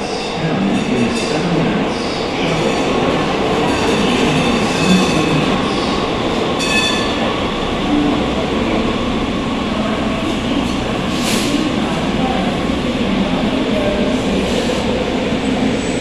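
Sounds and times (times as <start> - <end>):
steel wheels rumbling on rail: 0.0 - 16.0.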